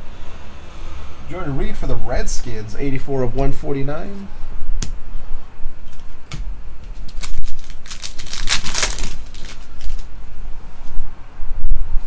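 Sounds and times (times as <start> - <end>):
low rumble: 0.0 - 5.8
plastic wrapper crinkling: 6.8 - 10.1.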